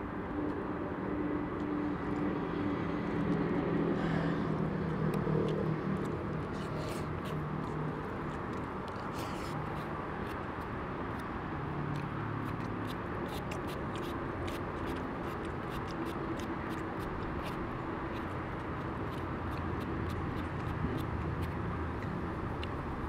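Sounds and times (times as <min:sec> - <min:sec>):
distant road traffic hum: 0:00.0 - 0:23.0
chewing rice: 0:00.4 - 0:23.0.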